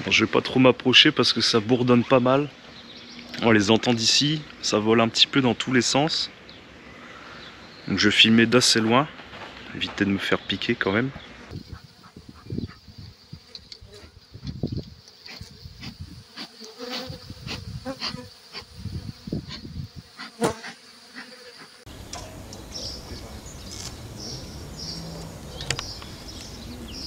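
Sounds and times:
honeybees buzzing: 11.5 - 27.0.

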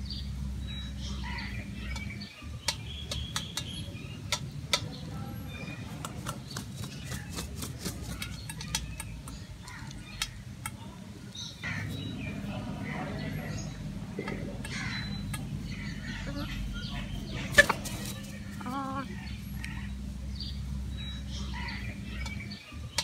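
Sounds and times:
beaks pecking metal bowl: 1.1 - 19.9
soft chicken calls: 14.2 - 19.9.

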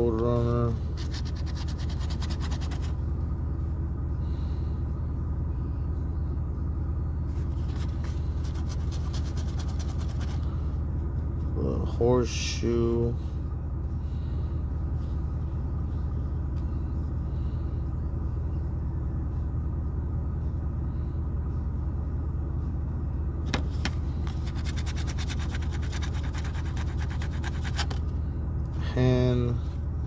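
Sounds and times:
car engine idling: 0.0 - 30.0.

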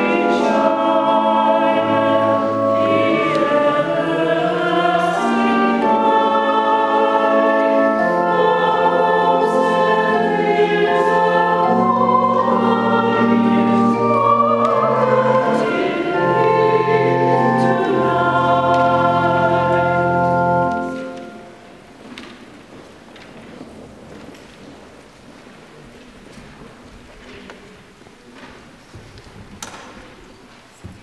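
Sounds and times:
choir singing: 0.0 - 21.7
pipe organ: 0.0 - 21.8.

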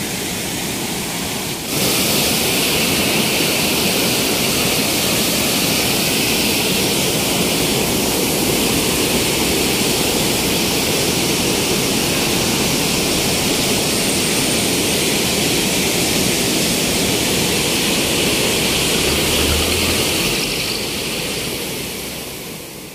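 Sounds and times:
water rushing over a weir: 0.0 - 22.9.

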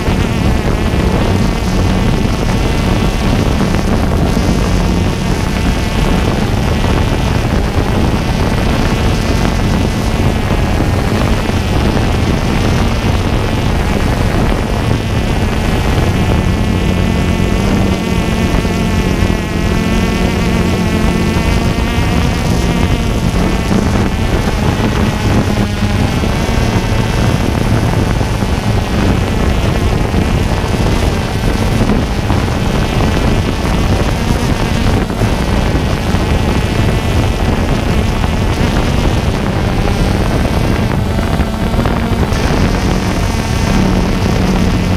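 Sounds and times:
drone propellers buzzing: 0.0 - 44.9
wind noise on microphone: 0.0 - 44.9.

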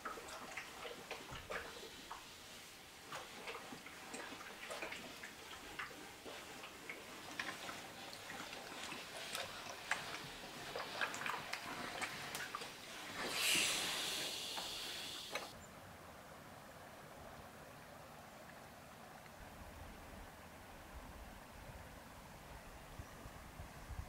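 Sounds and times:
steam iron sliding on cloth: 12.9 - 15.5.

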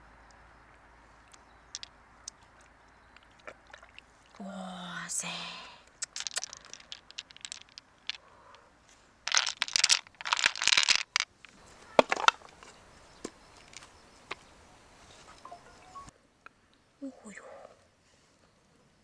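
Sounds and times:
beads clattering on shell: 1.3 - 2.4, 5.9 - 8.6, 9.2 - 11.6.

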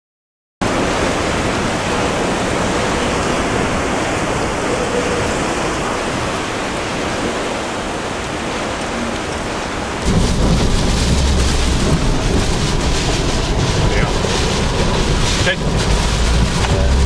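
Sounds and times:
heavy sea: 0.6 - 17.0
strong wind roaring: 0.6 - 17.0.

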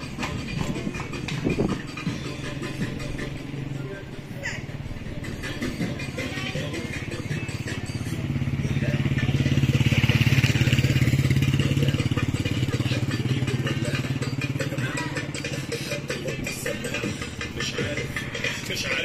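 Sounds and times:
motorcycle passing: 0.0 - 19.0.

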